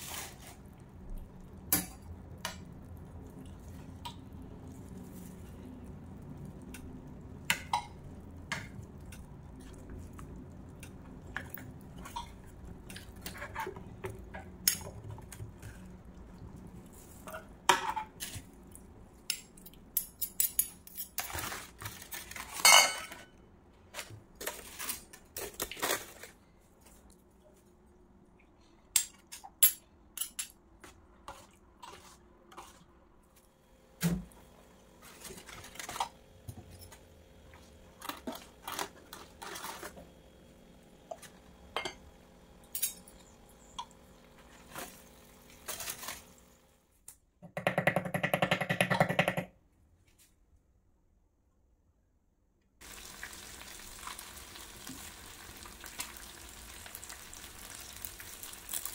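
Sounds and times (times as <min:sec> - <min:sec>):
aluminium foil crinkling: 0:00.0 - 0:00.8, 0:21.1 - 0:22.7, 0:24.0 - 0:26.4, 0:38.0 - 0:40.0, 0:45.6 - 0:46.4, 0:55.6 - 0:58.9
pots and utensils clinking: 0:11.2 - 0:15.4, 0:19.3 - 0:23.3, 0:41.1 - 0:42.1, 0:42.7 - 0:43.9.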